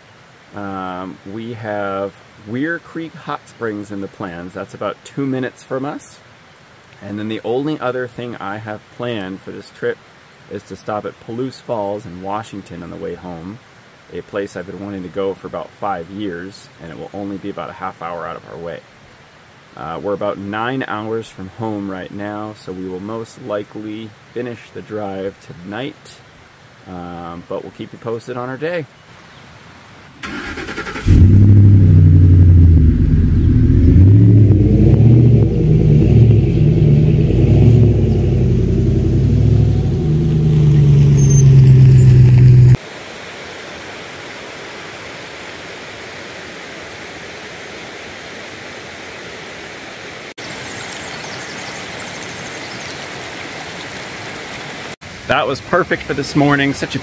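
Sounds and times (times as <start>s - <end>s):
pickup truck engine revving: 30.2s - 42.8s
flowing water rushing: 42.7s - 57.0s.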